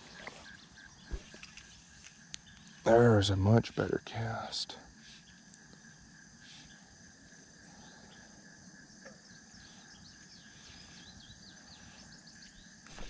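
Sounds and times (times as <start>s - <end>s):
crickets and insects trilling: 0.0s - 13.0s.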